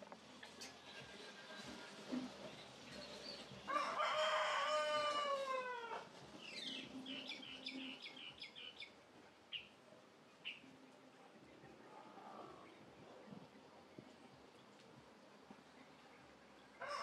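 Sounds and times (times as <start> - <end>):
rooster crowing: 3.7 - 6.1, 16.8 - 17.0.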